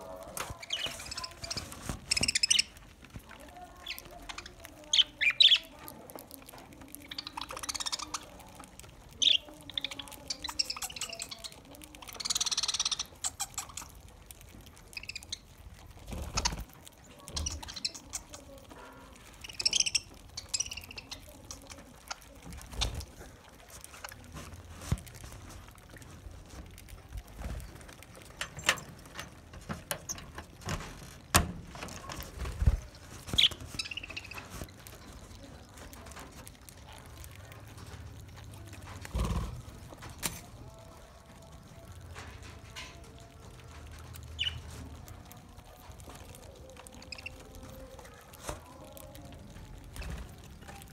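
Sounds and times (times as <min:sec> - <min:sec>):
budgerigars chirping and squawking: 0:00.0 - 0:02.8, 0:03.9 - 0:05.8, 0:07.0 - 0:08.4, 0:09.2 - 0:14.0, 0:19.3 - 0:22.2, 0:33.3 - 0:34.6, 0:44.4 - 0:44.7.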